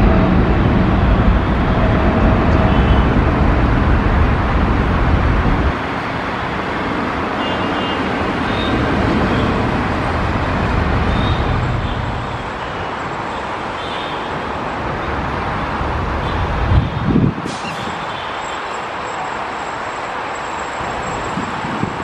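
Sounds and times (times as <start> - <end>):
jet engine rumble: 0.0 - 13.2.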